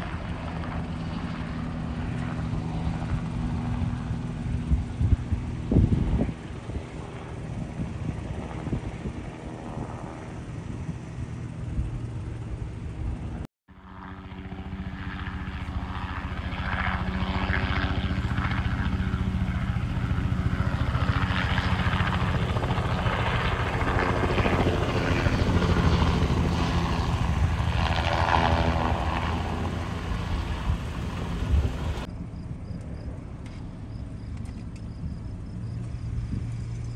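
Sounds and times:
helicopter engine and rotor: 0:00.0 - 0:36.9.

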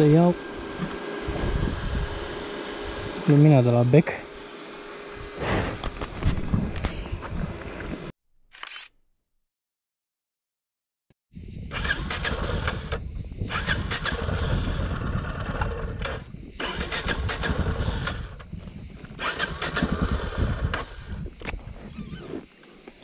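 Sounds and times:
motorcycle engine running: 0:00.0 - 0:07.6, 0:11.7 - 0:22.2.

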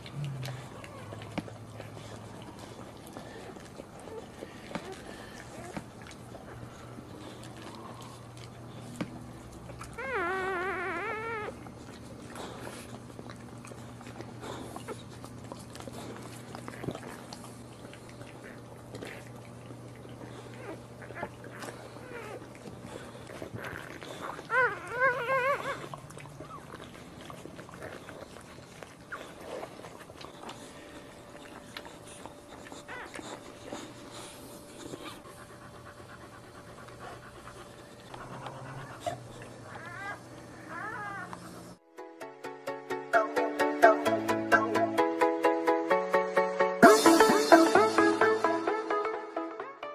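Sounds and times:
dog licking: 0:00.0 - 0:10.1, 0:11.4 - 0:40.5
faint puppy squeaks: 0:09.8 - 0:13.0, 0:20.2 - 0:22.6, 0:23.3 - 0:29.7, 0:31.4 - 0:35.2, 0:38.7 - 0:41.8
puppy squealing: 0:09.9 - 0:11.6, 0:23.6 - 0:26.8, 0:38.7 - 0:41.6.

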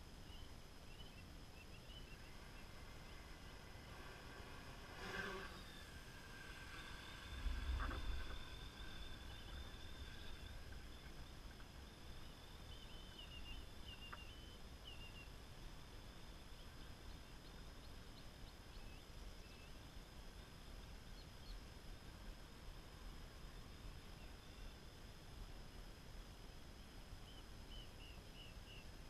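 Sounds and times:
drone propellers humming: 0:00.0 - 0:29.0
low rumble: 0:06.1 - 0:11.4.

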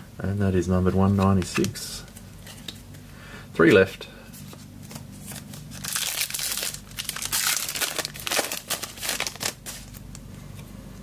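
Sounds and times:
foil wrapper tearing and crinkling: 0:05.2 - 0:10.1.

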